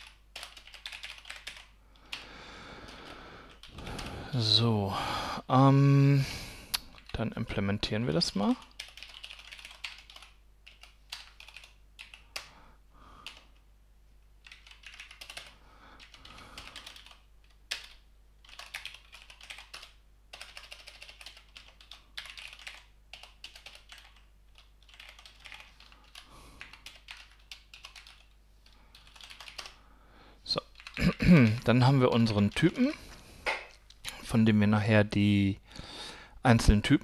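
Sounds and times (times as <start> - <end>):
typing on computer keyboard: 0.0 - 4.2, 8.5 - 12.5, 13.2 - 13.6, 14.4 - 29.8, 30.7 - 31.0.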